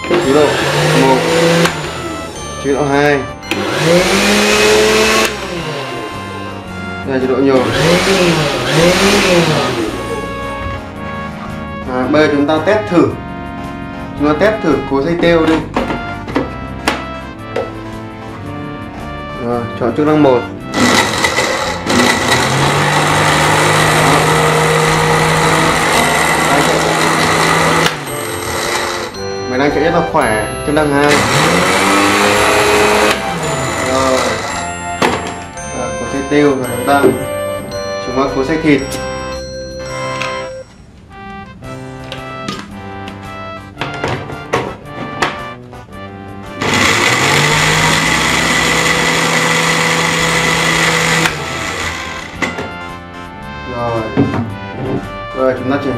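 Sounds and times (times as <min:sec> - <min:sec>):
food processor motor humming: 0:00.0 - 0:02.4, 0:03.5 - 0:06.6, 0:07.5 - 0:10.4, 0:20.7 - 0:29.4, 0:31.1 - 0:35.2, 0:46.5 - 0:52.6.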